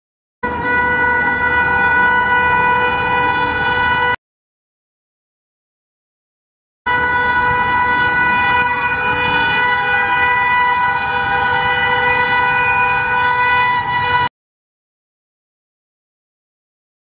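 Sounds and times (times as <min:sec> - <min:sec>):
locomotive horn blast: 0:00.4 - 0:04.2, 0:06.9 - 0:14.3.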